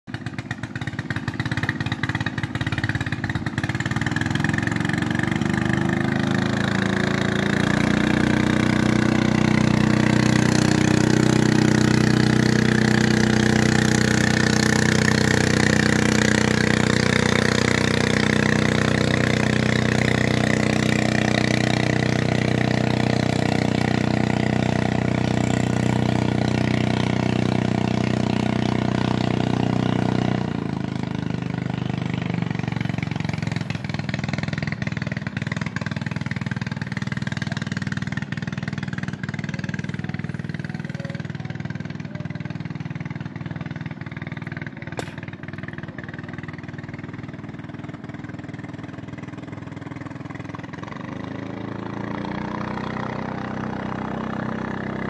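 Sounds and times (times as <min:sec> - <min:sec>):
boat engine running: 0:00.1 - 0:55.0.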